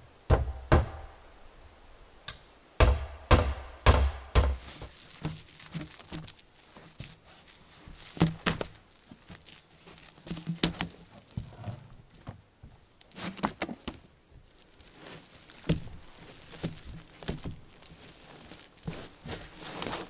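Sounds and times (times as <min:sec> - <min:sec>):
roofing roll crinkling and rustling: 0:04.6 - 0:20.0.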